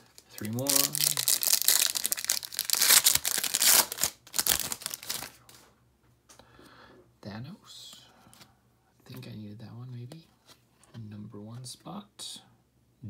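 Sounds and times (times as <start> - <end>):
wrapper tearing and crinkling: 0.0 - 5.4.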